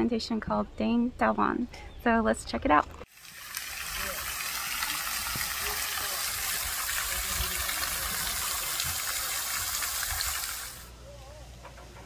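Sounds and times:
water rushing: 3.1s - 10.9s.

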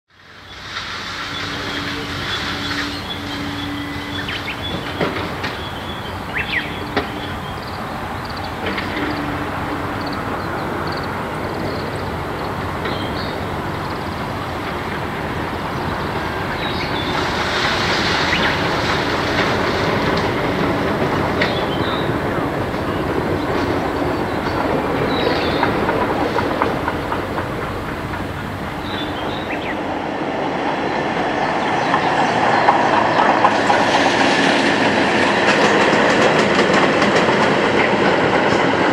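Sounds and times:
train wheels rumbling on track: 0.1s - 38.9s
sharp clicks of rails: 8.3s - 9.9s, 13.8s - 29.4s.

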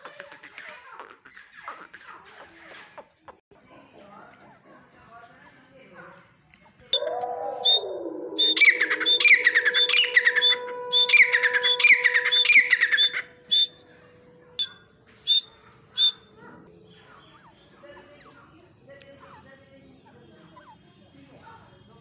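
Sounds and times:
francolin calling shrill notes: 7.0s - 17.6s.

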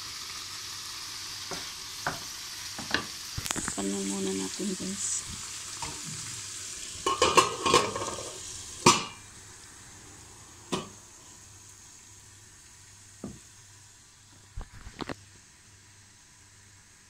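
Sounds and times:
food sizzling in pan: 0.0s - 17.0s
lid knocking on frying pan: 7.0s - 9.2s.

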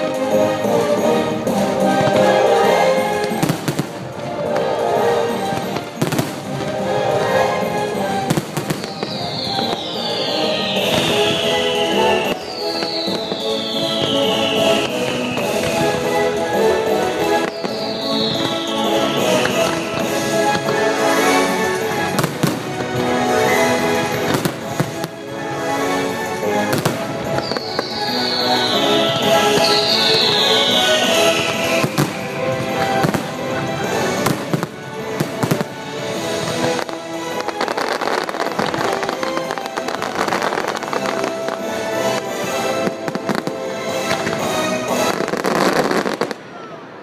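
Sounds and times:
loud show music: 0.0s - 46.2s
fireworks bangs: 1.5s - 47.0s
high tone gliding downward: 4.9s - 22.3s, 26.8s - 34.1s.

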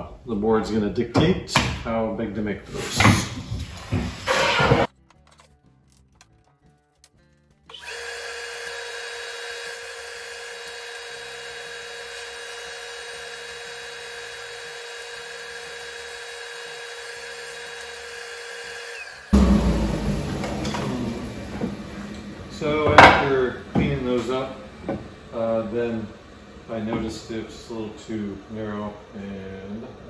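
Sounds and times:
power tool motor running: 7.7s - 19.4s
loud low noise: 19.3s - 27.4s.

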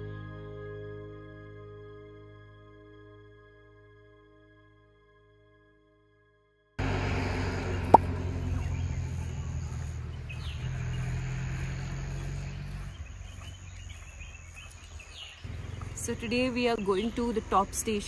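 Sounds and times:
vehicle engine low hum: 6.8s - 18.0s
faint bird chirps: 7.7s - 17.4s.

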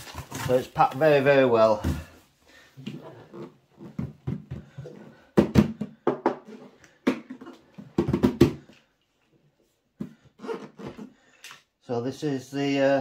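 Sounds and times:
plastic battery case knocking: 7.1s - 8.6s.

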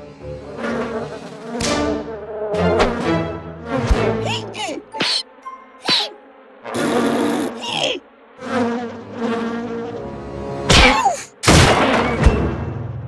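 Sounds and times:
buzzing drone: 0.0s - 5.2s, 5.8s - 10.8s.

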